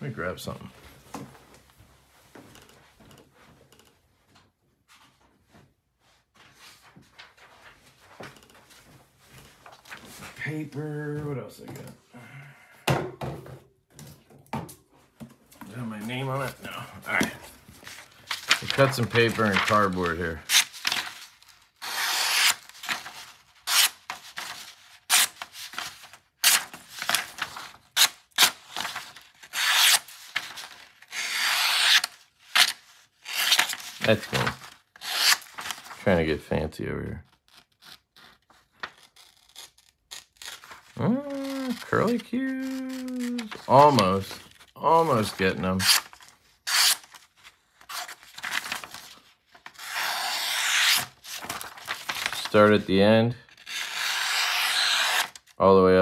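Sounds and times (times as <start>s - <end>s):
knife slicing paper: 21.8s - 35.9s, 37.6s - 44.2s, 45.8s - 47.2s, 47.9s - 52.6s, 53.6s - 55.4s.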